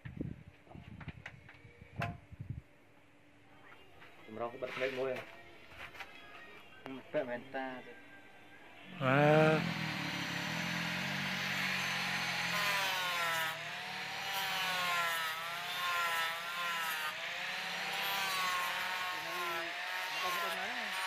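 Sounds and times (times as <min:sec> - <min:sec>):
angle grinder grinding steel: 0:09.0 - 0:21.0.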